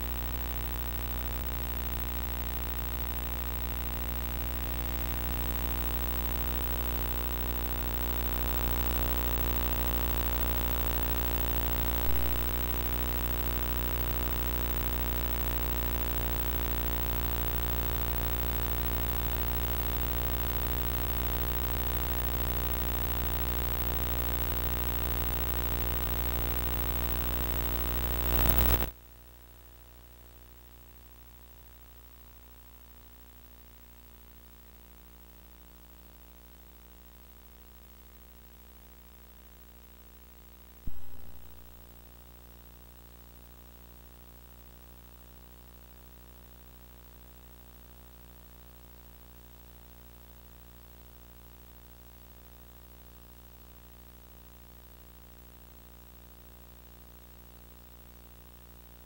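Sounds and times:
low electrical hum: 0.0s - 33.4s, 40.9s - 42.1s.

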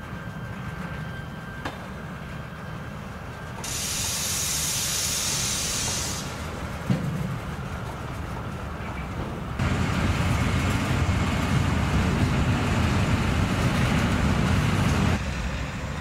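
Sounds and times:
train rumble: 0.0s - 16.0s
compressed air hiss: 3.6s - 6.4s.

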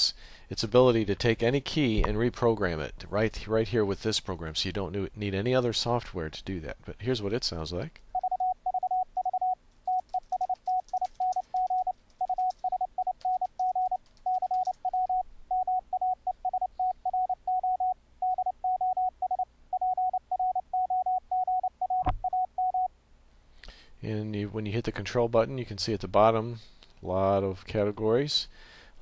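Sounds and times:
morse code tone: 8.2s - 22.9s.

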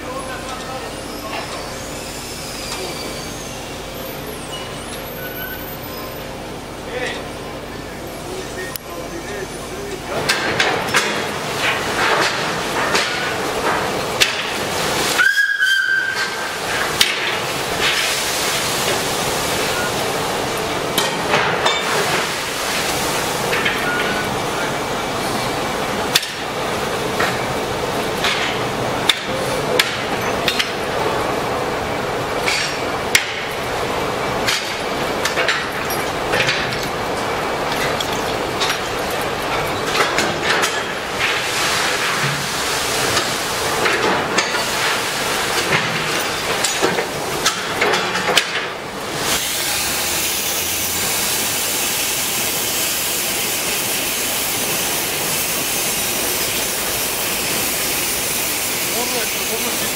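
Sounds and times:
steam hissing: 0.2s - 6.1s, 11.0s - 31.6s, 40.7s - 47.7s, 48.9s - 59.9s
steam locomotive whistle: 15.1s - 16.6s.

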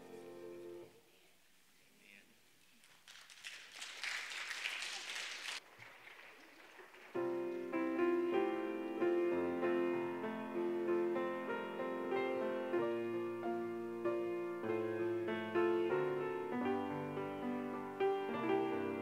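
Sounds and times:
grand piano playing chords: 0.0s - 0.9s, 7.1s - 19.0s
congregation applause: 2.6s - 8.0s.

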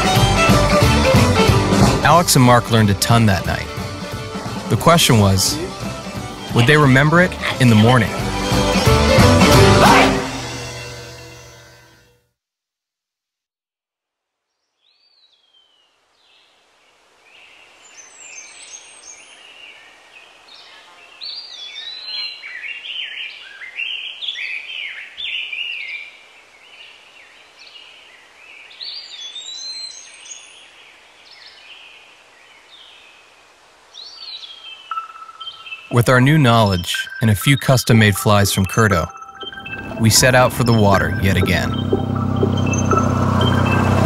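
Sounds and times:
steady outdoor hiss: 0.0s - 9.7s, 14.5s - 44.0s
songbirds chirping and singing: 17.9s - 33.2s, 34.0s - 44.0s.

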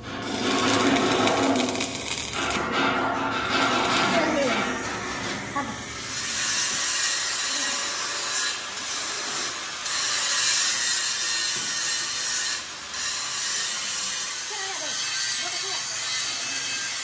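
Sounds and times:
tool rasping on metal: 6.0s - 17.0s.

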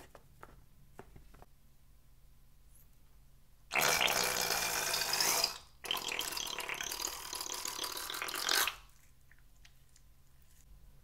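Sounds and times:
slime squirting from balloon: 3.7s - 9.0s.

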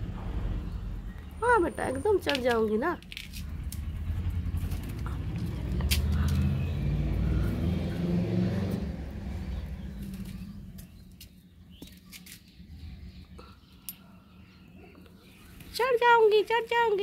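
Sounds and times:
low rumble: 0.0s - 11.2s.

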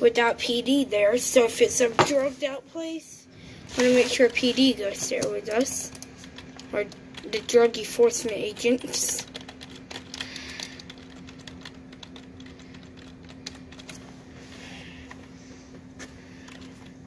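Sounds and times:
faint steady hum: 0.0s - 17.0s
typing on a keyboard: 8.3s - 14.0s.

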